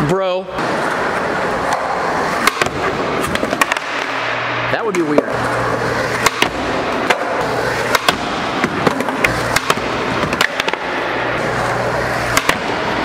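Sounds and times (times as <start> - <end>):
skateboard wheels rolling on concrete: 4.9 - 13.0
skateboard clacks: 6.2 - 11.0, 12.2 - 13.0.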